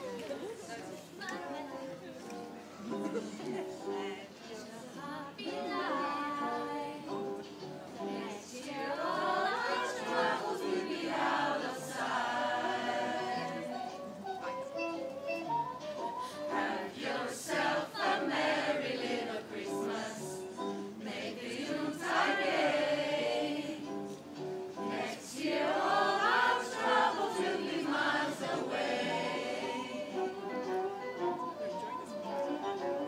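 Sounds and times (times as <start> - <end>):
group singing a carol: 3.1 - 14.2, 16.2 - 30.8.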